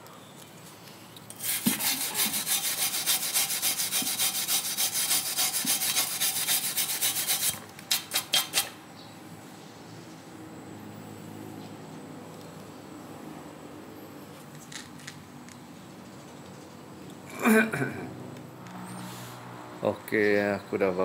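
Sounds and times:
rubbing or scraping strokes: 1.3 - 8.8.

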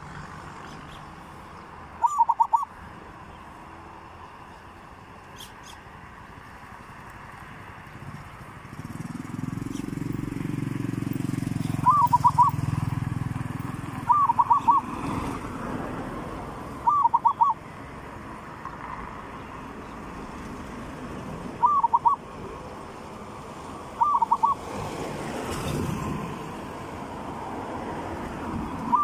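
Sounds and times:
dove cooing: 2.0 - 2.7, 11.6 - 12.6, 14.0 - 15.0, 16.8 - 17.6, 21.6 - 22.2, 24.0 - 24.7.

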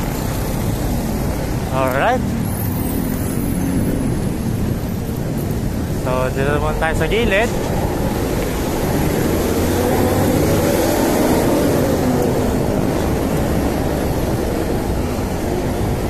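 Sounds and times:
bus engine droning: 0.0 - 16.0
road noise: 0.0 - 16.0.

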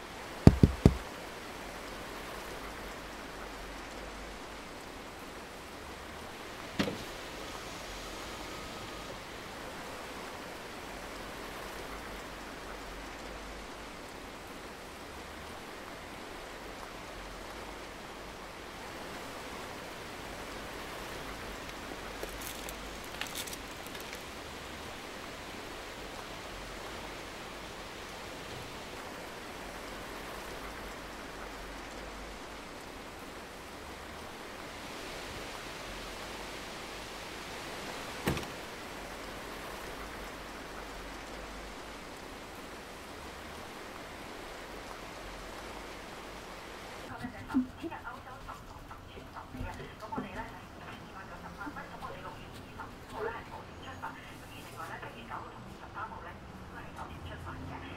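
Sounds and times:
steady hiss: 0.0 - 57.8
sharp knock: 0.5 - 1.0.

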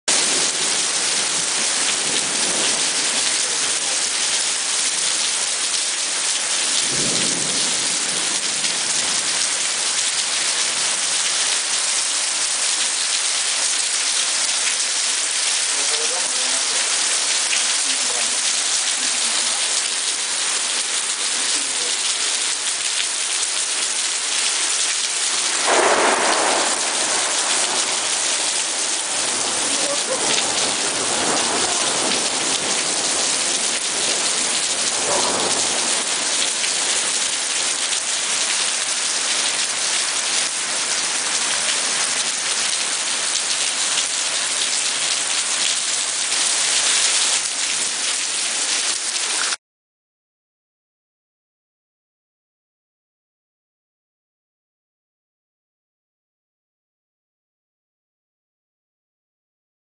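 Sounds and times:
heavy rain pouring: 0.1 - 49.6
thunder rumble: 25.3 - 36.4.

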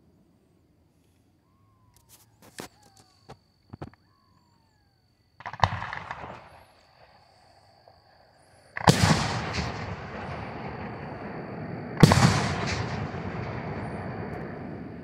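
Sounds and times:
firework shells bursting: 5.4 - 6.8.

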